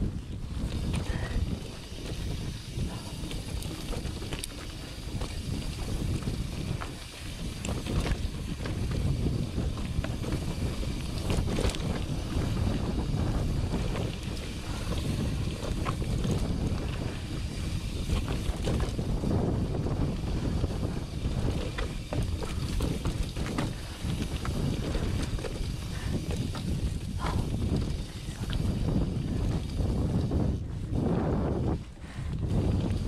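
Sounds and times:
bike rattling over stones: 0.0 - 33.0
wind buffeting microphone: 0.0 - 33.0.

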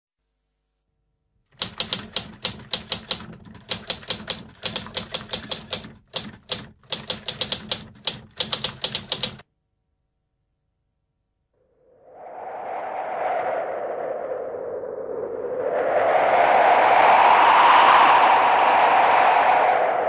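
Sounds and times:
typing on keyboard keys: 1.5 - 9.5.

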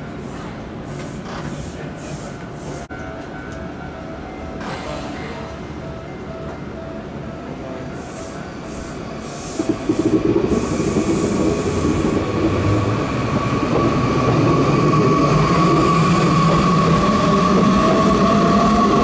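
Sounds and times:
train wheels rumbling: 8.7 - 19.0.

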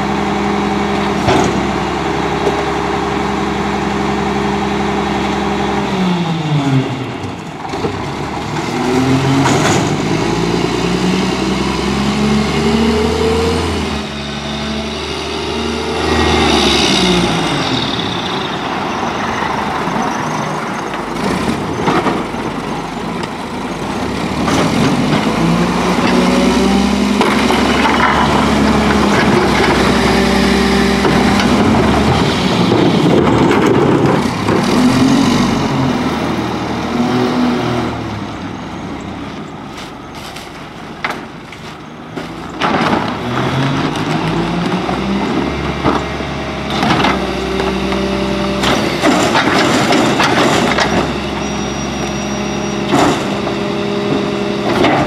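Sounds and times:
garbage truck engine revving: 0.0 - 55.0
carts knocking against hopper: 48.6 - 51.2.

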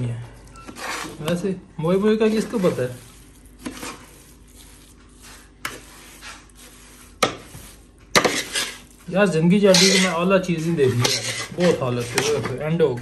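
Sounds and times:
metal spoon scraping dry mixture: 0.6 - 12.7.

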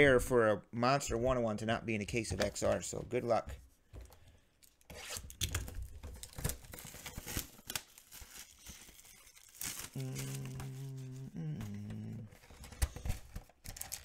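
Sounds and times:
plastic wrapping crinkling and tearing: 5.0 - 14.0.

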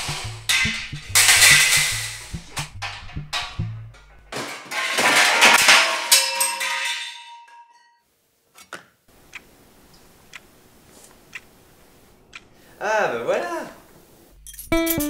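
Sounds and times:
clock ticking faintly: 0.0 - 4.3, 9.2 - 9.5
metal tubes crashing and clattering: 0.0 - 7.8.

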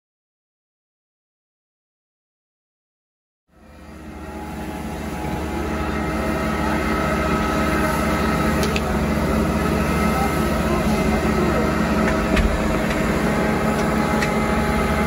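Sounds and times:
fire engine motor drone: 3.5 - 15.0.

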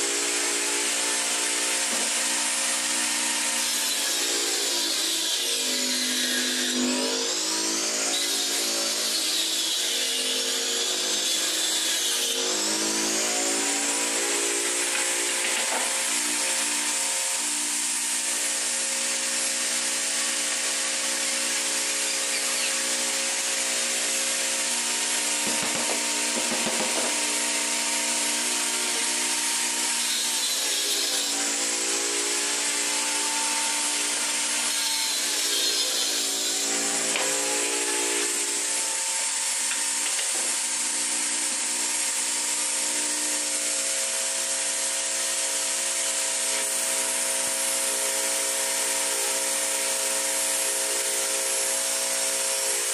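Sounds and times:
table saw cutting board: 0.0 - 52.9
knocks: 25.4 - 27.3.

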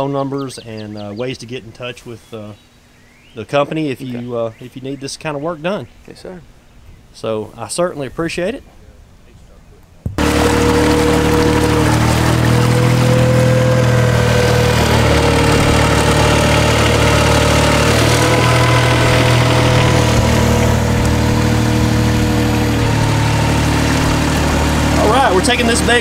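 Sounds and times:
diesel engine running: 10.2 - 26.0.

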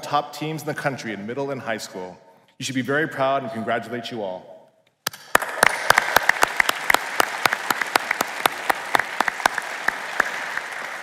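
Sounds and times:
loud sharp claps: 5.0 - 11.0
audience applause: 5.2 - 11.0.

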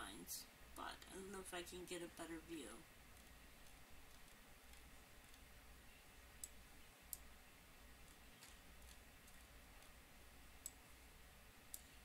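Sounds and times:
faint low hum: 0.0 - 12.0
computer mouse clicks: 3.1 - 5.5, 6.4 - 7.3, 7.9 - 10.0, 10.6 - 10.8, 11.6 - 12.0.

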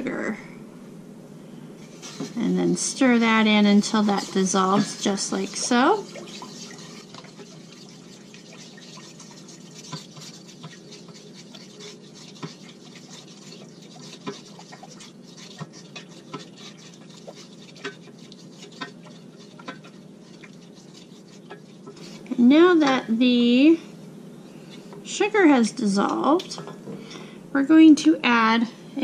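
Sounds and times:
spoon scraping steel saucepan: 1.8 - 23.0.

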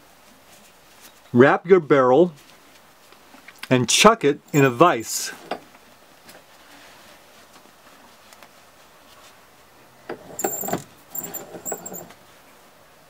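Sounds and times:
short high squeaks: 4.5 - 5.5, 10.2 - 12.1
handling noise: 10.0 - 12.2.

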